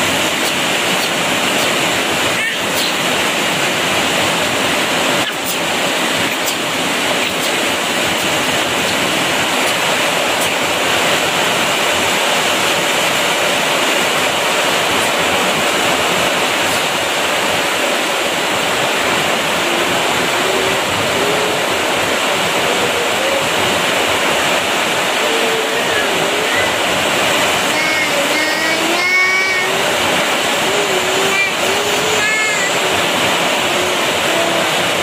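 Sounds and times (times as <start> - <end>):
heavy rain pouring: 0.0 - 35.0.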